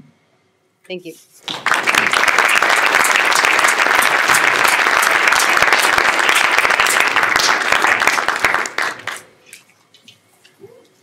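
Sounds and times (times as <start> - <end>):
audience applauding: 1.4 - 9.4.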